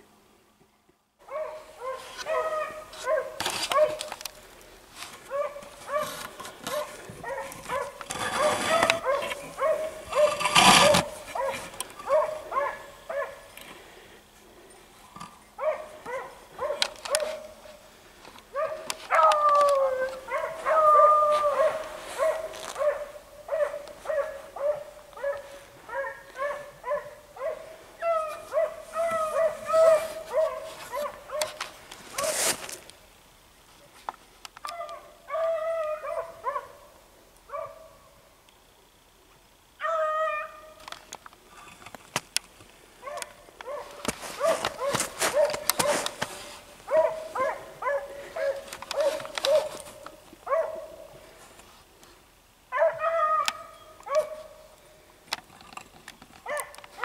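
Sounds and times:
dogs baying and barking: 1.2 - 4.2, 5.2 - 13.5, 15.6 - 17.7, 18.5 - 32.4, 34.6 - 36.8, 43.0 - 51.1, 52.7 - 54.6, 56.4 - 57.0
dog howling: 18.6 - 22.9, 34.7 - 36.6, 39.8 - 40.6, 52.8 - 54.2.

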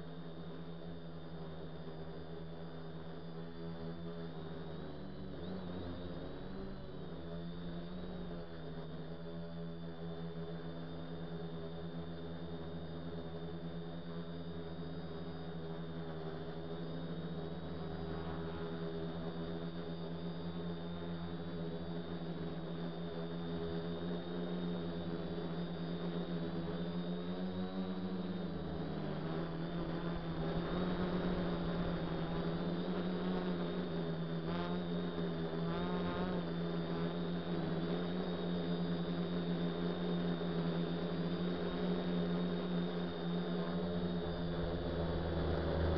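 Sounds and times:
drone motors humming: 0.0 - 45.9.

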